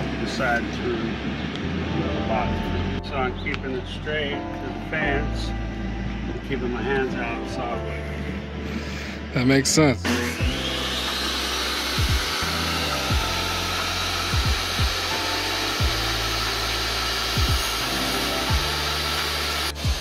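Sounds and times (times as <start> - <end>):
lo-fi music with bass line: 0.0 - 20.0
table saw cutting wood: 10.0 - 20.0.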